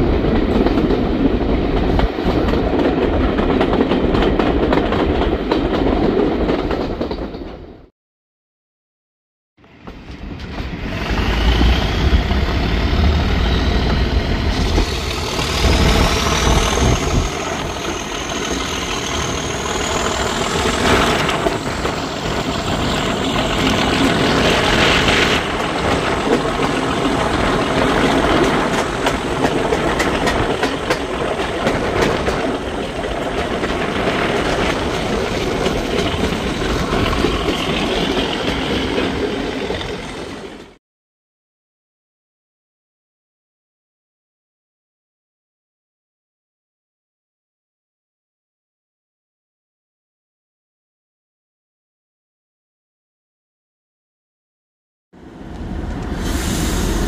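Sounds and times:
train in motion: 0.0s - 7.9s, 9.6s - 40.8s, 55.2s - 57.0s
diesel locomotive engine working hard: 9.8s - 40.8s, 55.2s - 57.0s.

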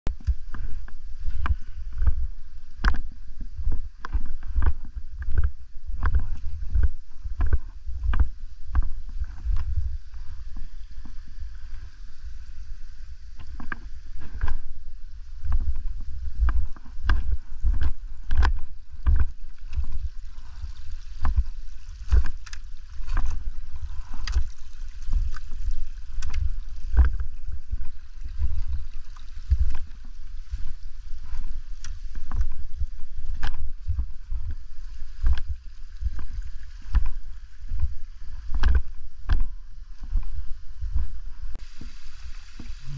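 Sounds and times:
trekking poles clicking: 13.3s - 40.3s.

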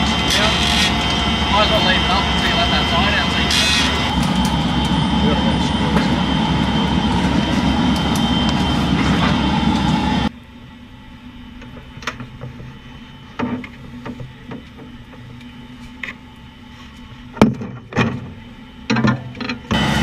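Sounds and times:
loud steady rushing noise: 0.0s - 10.4s, 19.7s - 20.0s.

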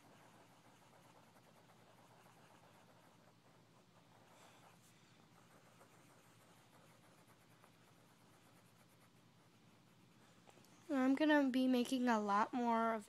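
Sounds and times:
pencil scratching on paper: 0.0s - 10.4s.

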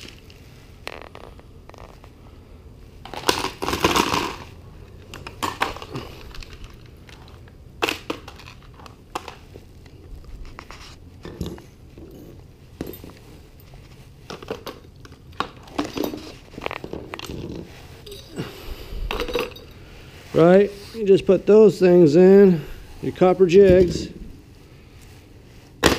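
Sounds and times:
rustling: 8.2s - 25.8s.

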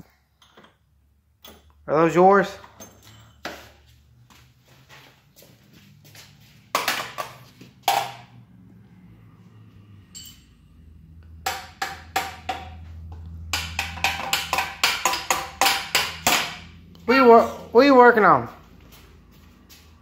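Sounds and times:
knocking on metal drawers: 13.5s - 16.6s.

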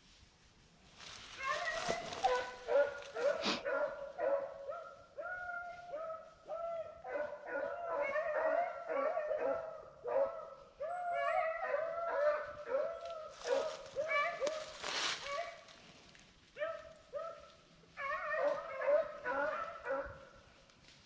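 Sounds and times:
hounds baying: 1.4s - 15.7s, 16.6s - 20.4s.

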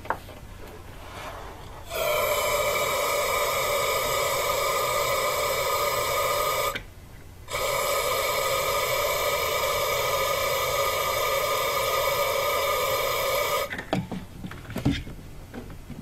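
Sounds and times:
aerosol spray hissing: 1.9s - 6.8s, 7.5s - 13.7s.

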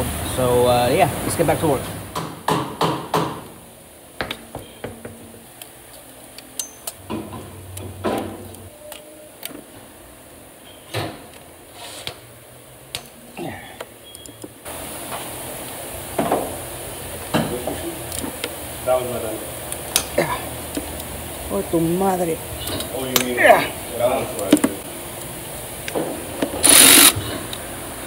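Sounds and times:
wrench clinking on engine parts: 6.5s - 7.0s.

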